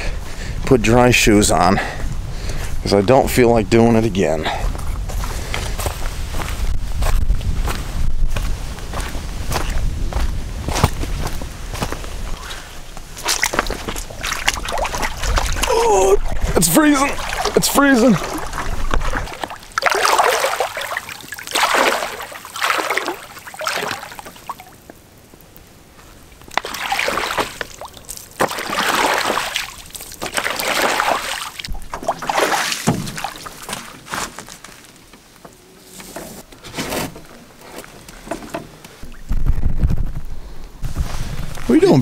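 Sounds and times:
water sloshing and splashing: 10.7s - 35.1s.

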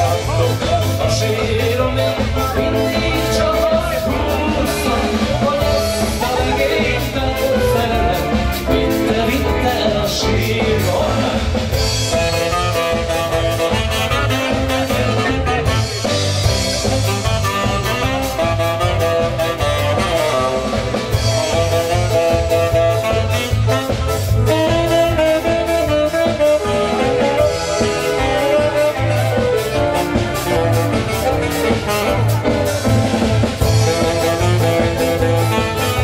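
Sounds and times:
dance band playing: 0.0s - 36.0s
drum kit beat: 0.0s - 36.0s
saxophone: 0.0s - 36.0s.

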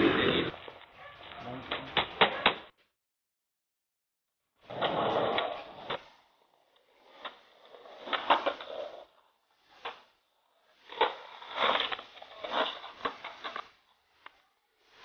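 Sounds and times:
skateboards hitting ground: 0.0s - 2.8s, 4.6s - 15.0s
skateboard wheels rumbling: 4.6s - 13.9s.

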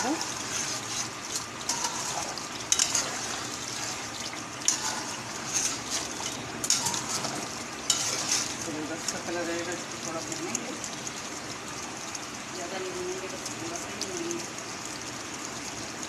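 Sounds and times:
metal spatula scraping pot: 0.0s - 9.2s
gravy sizzling: 0.0s - 16.0s.

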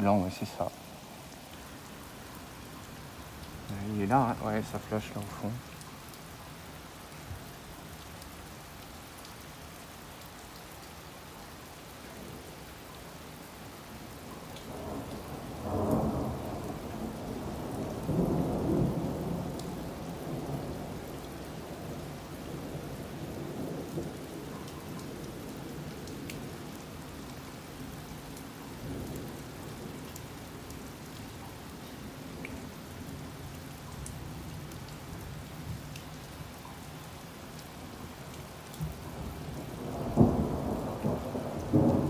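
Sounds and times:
steady rain falling: 0.0s - 42.0s
rolling thunder: 14.7s - 21.0s, 38.8s - 42.0s.

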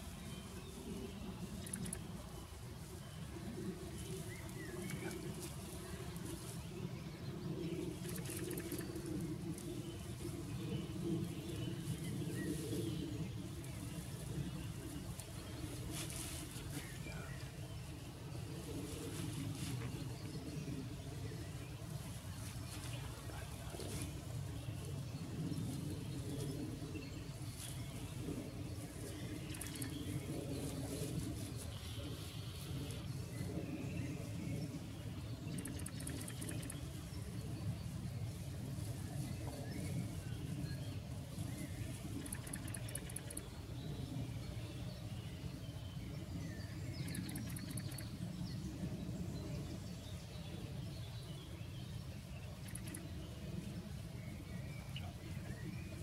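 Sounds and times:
faint rustles and clicks: 0.0s - 20.9s, 21.6s - 33.6s
low outdoor rumble: 0.0s - 56.0s
bird chirps: 35.5s - 36.9s, 42.2s - 43.5s, 47.0s - 48.1s, 52.6s - 53.1s.

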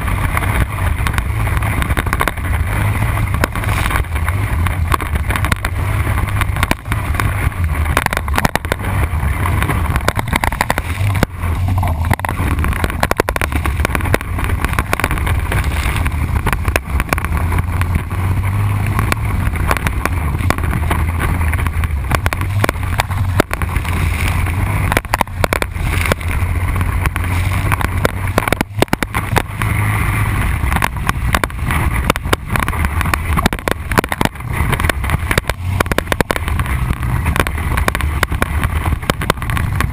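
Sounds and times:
atv engine rumbling: 0.0s - 39.9s
knocks and rattles of vehicle: 0.0s - 39.9s.

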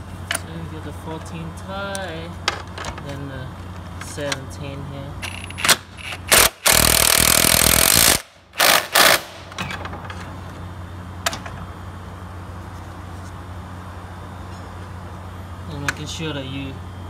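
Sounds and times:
impact wrench tightening bolt: 5.2s - 9.4s.

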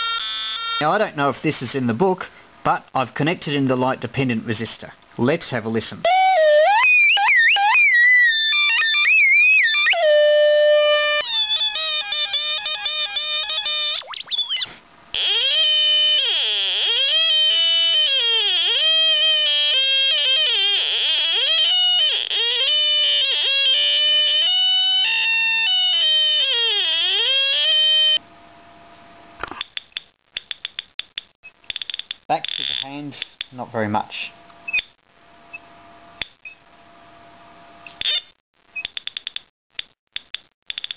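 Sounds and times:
warbling electronic siren tone: 6.1s - 28.2s.

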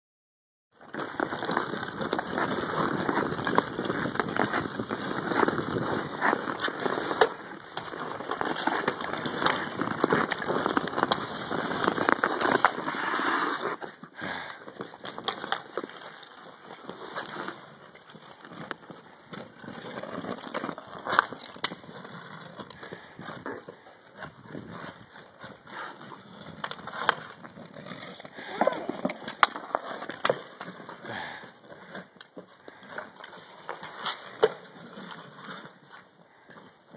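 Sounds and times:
skate blades scraping on ice: 0.8s - 36.9s
hockey stick striking puck: 28.1s - 30.8s, 33.2s - 34.8s.

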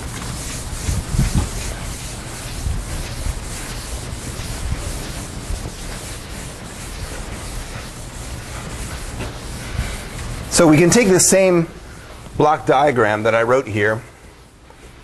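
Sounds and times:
eraser rubbing chalkboard: 0.0s - 11.6s.

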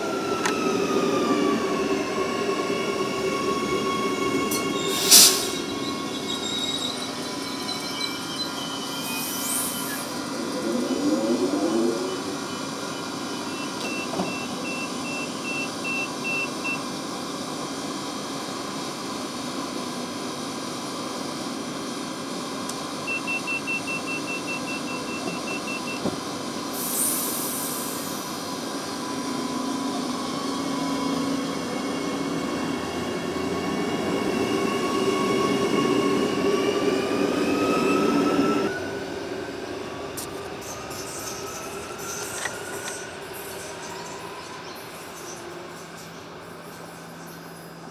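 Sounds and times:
train door beeps: 0.0s - 16.9s, 23.0s - 26.2s
train traction motor whine: 0.0s - 47.9s.

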